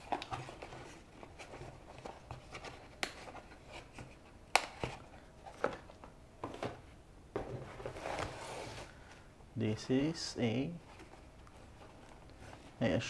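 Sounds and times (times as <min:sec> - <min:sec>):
hands handling packaging: 0:00.0 - 0:09.2.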